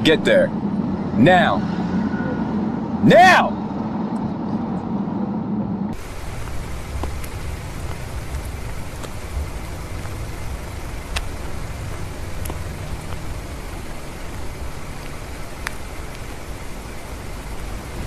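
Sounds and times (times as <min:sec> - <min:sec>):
low rumble: 0:00.0 - 0:18.0
even hiss: 0:06.0 - 0:18.0.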